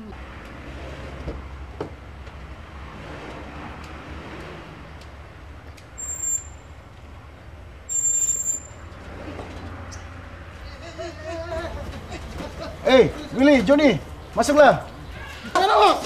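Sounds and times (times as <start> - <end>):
shrill high-pitched rings: 7.9 - 8.8.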